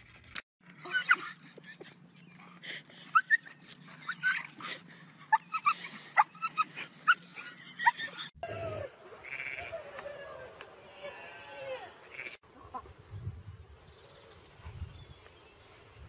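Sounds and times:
dog whining and yelping: 3.1 - 4.7
sheep bleating: 9.2 - 10.0, 10.9 - 12.4.

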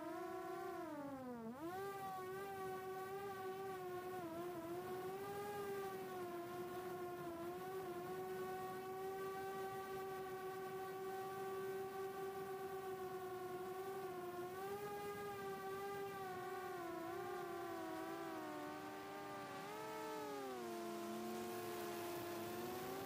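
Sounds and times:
drone propellers whining: 1.6 - 23.0.

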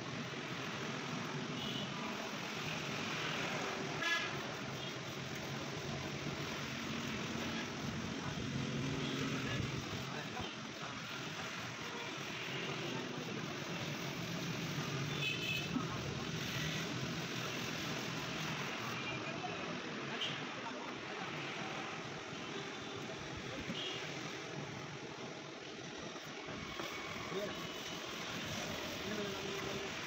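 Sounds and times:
passing road traffic: 0.0 - 30.0.

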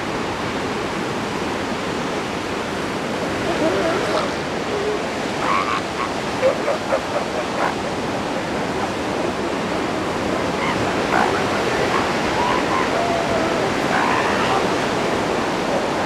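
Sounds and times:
surf washing: 0.0 - 16.0
elephant seal calls: 3.4 - 15.1.

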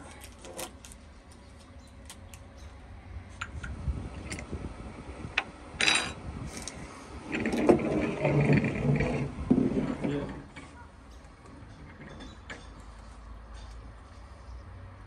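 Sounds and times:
glass and metal clinks: 5.8 - 6.2.

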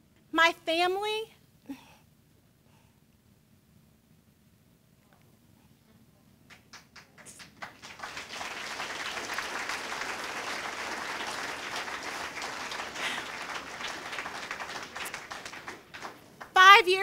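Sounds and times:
audience applauding: 6.5 - 17.0.

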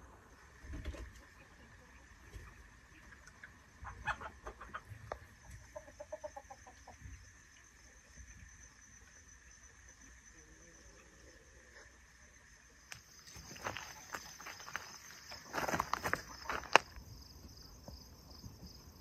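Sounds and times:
chickens clucking: 0.6 - 7.2.

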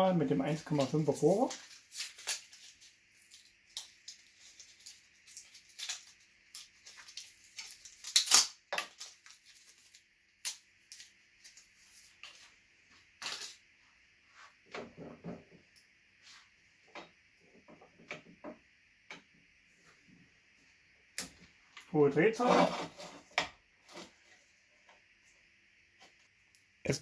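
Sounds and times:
faint steady hiss: 0.0 - 27.0.

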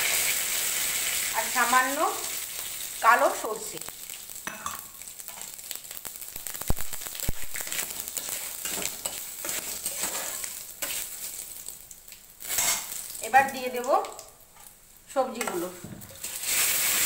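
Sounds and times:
spices sizzling in oil: 0.0 - 17.0
seeds crackling and popping: 1.3 - 14.8.

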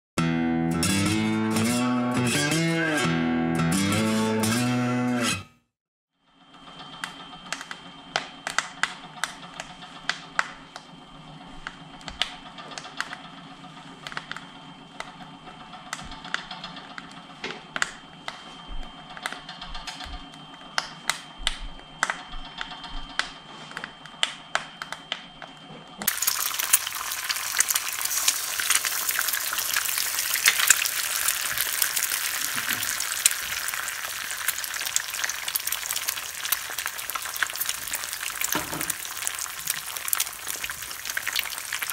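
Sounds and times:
wood fire crackling and popping: 26.0 - 41.9
eggs sizzling in a frying pan: 26.1 - 41.9.

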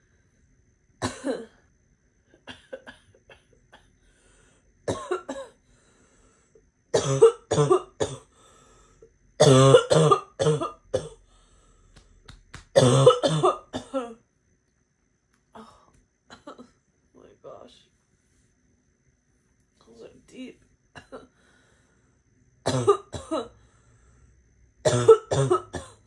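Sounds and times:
girl barking cough: 1.0 - 1.6, 2.5 - 3.9, 4.9 - 5.5, 7.0 - 8.3, 9.4 - 11.2, 12.8 - 14.2, 21.0 - 21.3, 22.6 - 23.5, 24.8 - 26.0.

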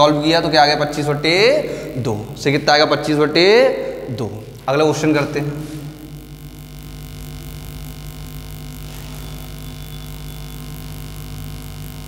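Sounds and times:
electrical mains hum: 0.0 - 12.0
duster wiping whiteboard: 8.9 - 9.4.

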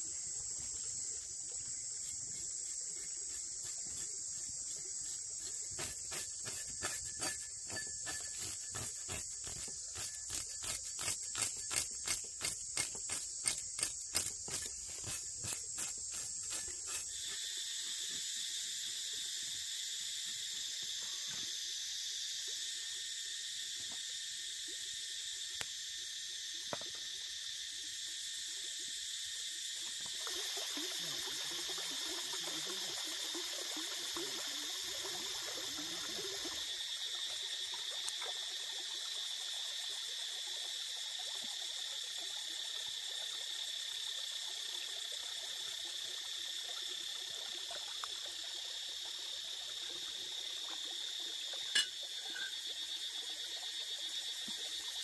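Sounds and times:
insects chorus: 0.0 - 55.0
stream trickling over stones: 0.2 - 17.3, 30.0 - 55.0.

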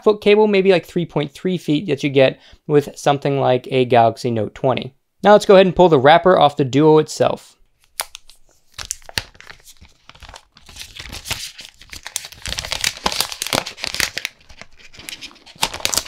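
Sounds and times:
plastic wrapper crinkling: 7.8 - 16.0.

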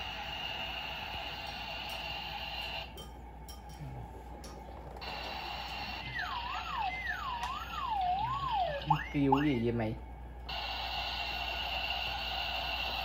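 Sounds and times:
toy buzzing with high whine: 0.0 - 3.0, 5.0 - 9.6, 10.5 - 13.0.

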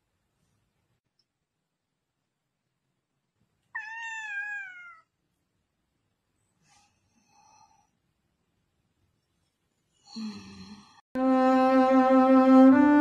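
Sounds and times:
cat meowing: 3.7 - 5.1.

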